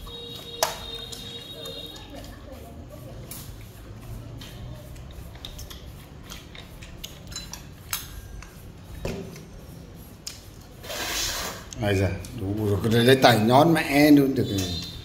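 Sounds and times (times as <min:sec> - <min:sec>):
chopsticks clicking on dishes: 0:03.2 - 0:09.5.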